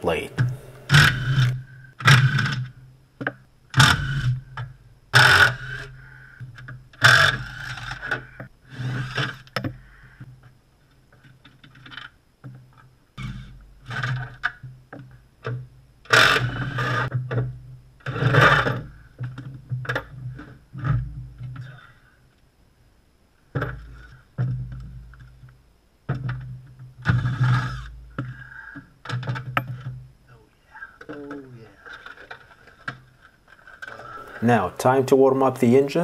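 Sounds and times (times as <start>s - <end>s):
metal scraping: 0.0s - 2.8s.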